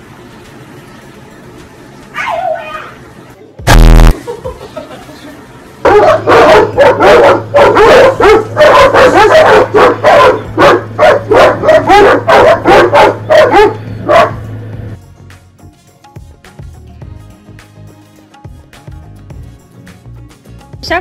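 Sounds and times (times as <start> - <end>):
dogs barking: 2.1 - 3.0, 5.8 - 14.6.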